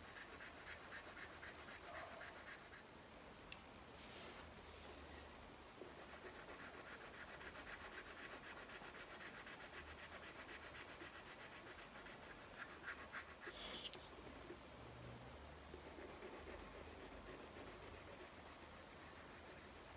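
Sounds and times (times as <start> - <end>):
pencil scratching on paper: 0.0 - 2.8, 5.8 - 14.5, 15.7 - 19.9.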